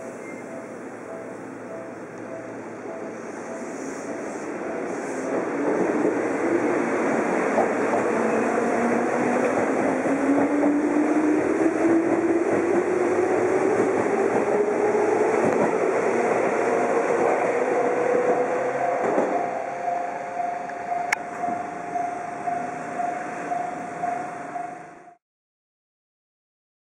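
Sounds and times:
level crossing warning bell: 0.0s - 5.0s, 17.0s - 25.2s
train wheels rumbling: 0.0s - 25.2s.

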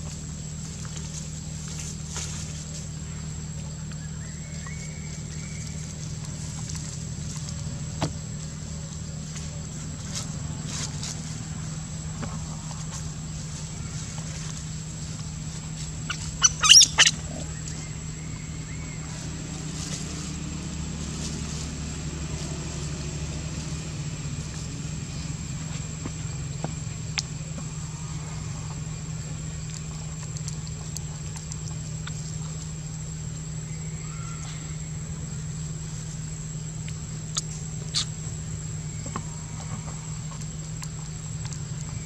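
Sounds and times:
steady low hum: 0.0s - 42.0s
monkey squealing: 16.1s - 17.4s
faint ticks: 25.7s - 27.7s, 28.6s - 32.8s.

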